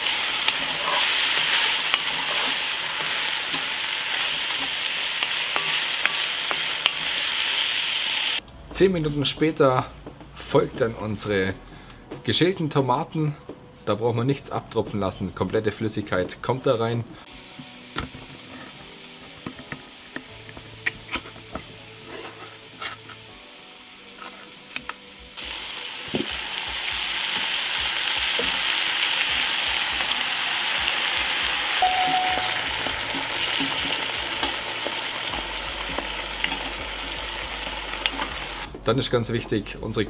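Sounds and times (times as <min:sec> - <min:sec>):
wooden spoon stirring pot: 0:00.0 - 0:07.3
tomatoes sizzling in hot pot: 0:00.0 - 0:08.4, 0:17.2 - 0:38.7.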